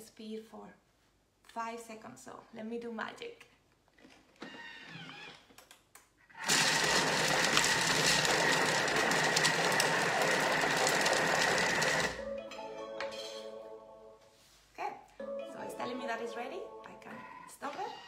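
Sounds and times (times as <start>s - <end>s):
food processor chopping: 6.4s - 12.2s.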